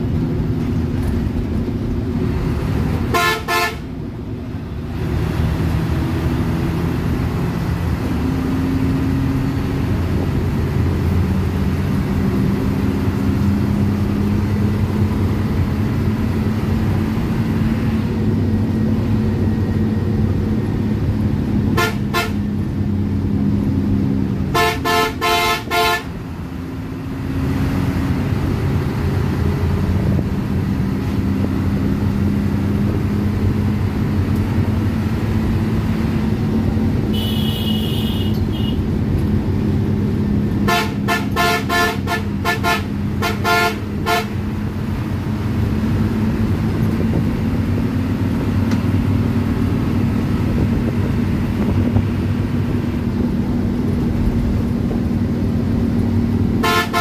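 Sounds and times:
bus diesel engine running: 0.0 - 57.0
bus horn toots: 3.0 - 4.0, 21.7 - 22.6, 24.4 - 26.2, 37.0 - 38.9, 40.6 - 44.6, 56.5 - 57.0.

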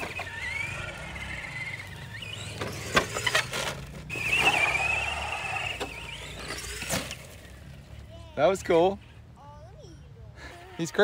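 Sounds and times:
electric motor whining: 0.0 - 7.6.

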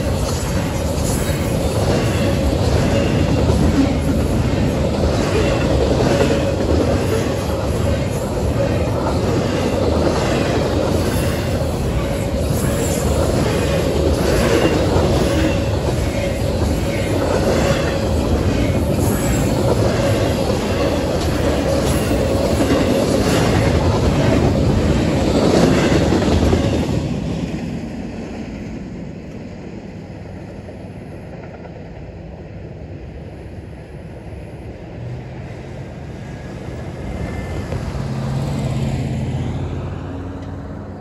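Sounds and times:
freight train wheels clattering: 0.0 - 27.8.

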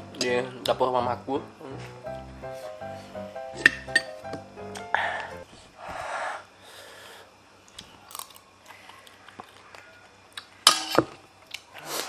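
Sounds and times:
person chewing food: 7.7 - 10.6.

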